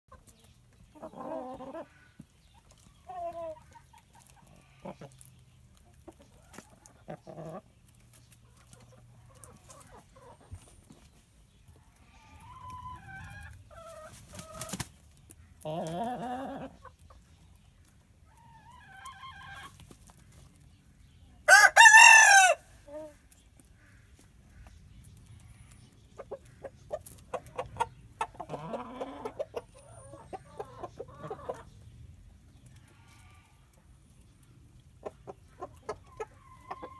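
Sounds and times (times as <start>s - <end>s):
hens clucking: 0.1s - 36.9s
rooster crowing: 21.5s - 22.6s.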